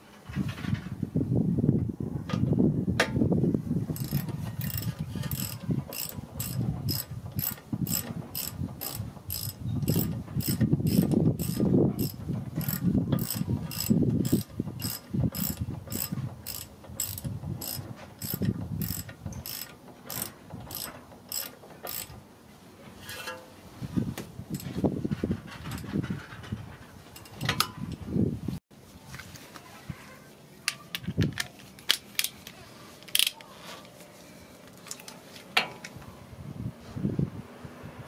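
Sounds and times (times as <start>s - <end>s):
ratchet wrench clicking: 4.0s - 22.1s.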